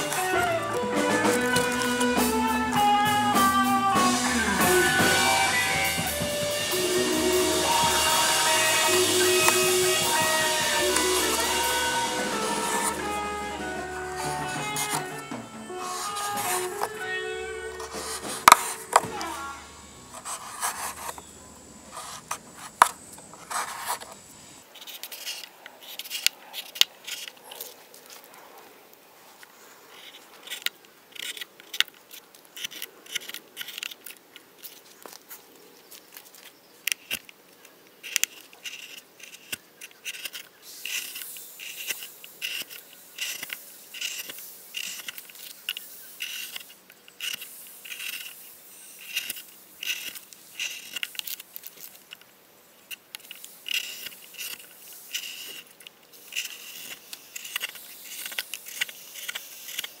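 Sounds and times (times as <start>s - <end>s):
gouge slicing and scraping wood: 7.5s - 19.5s, 20.1s - 21.3s, 21.9s - 24.2s.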